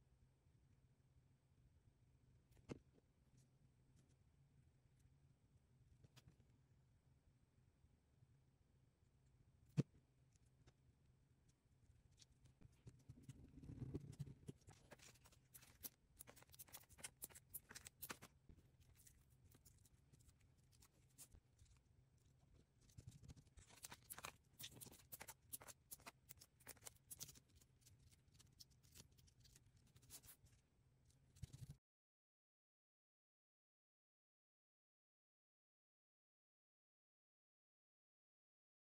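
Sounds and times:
paper rustling: 22.8 - 30.5.

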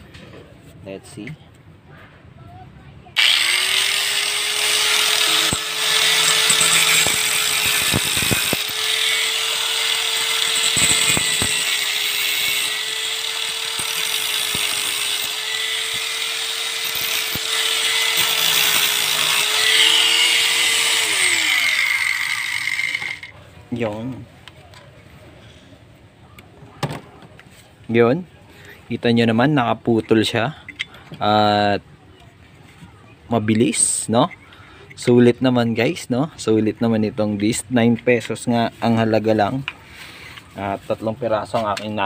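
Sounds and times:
grinder motor spinning down: 3.2 - 23.3
angle grinder cutting steel: 3.2 - 23.4.

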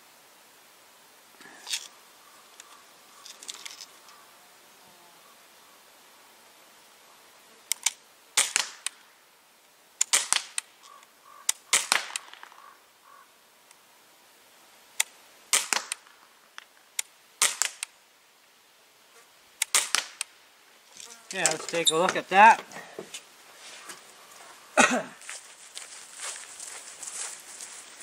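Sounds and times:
air rifle firing pops: 8.4 - 9.0, 10.0 - 10.7, 11.5 - 12.6, 15.5 - 16.1, 17.4 - 17.9, 19.6 - 20.3.

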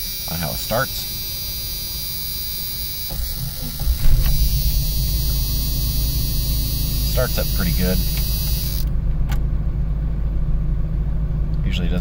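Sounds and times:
car starter cranking: 0.0 - 9.5
car engine idling: 0.0 - 12.0.

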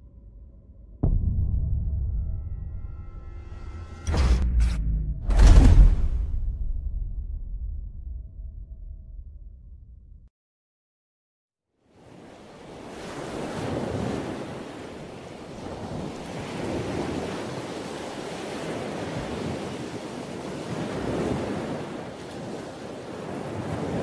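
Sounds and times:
sea waves washing in: 11.8 - 24.0.

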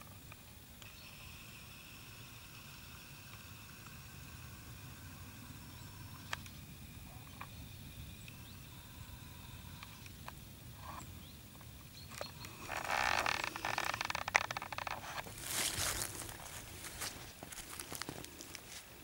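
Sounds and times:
leaves crunching underfoot: 12.5 - 19.0.

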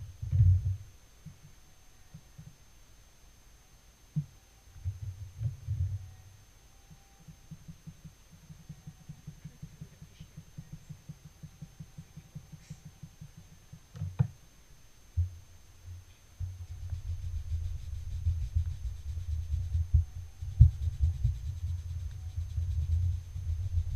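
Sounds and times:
brush dabbing soft thuds: 16.4 - 23.9.

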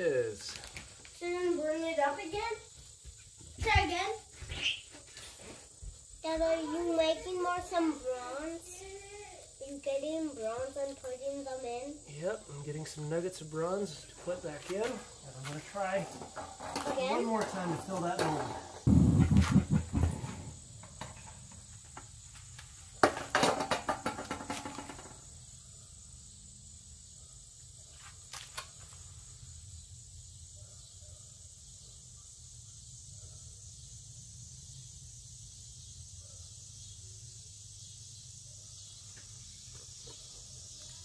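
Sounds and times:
metal clanking and scraping: 15.9 - 21.8.

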